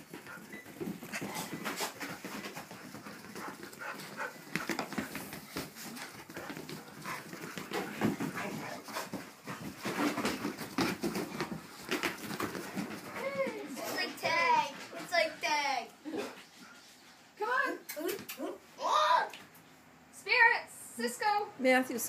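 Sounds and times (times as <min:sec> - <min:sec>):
paws scrabbling on rug: 0:00.0 - 0:15.6.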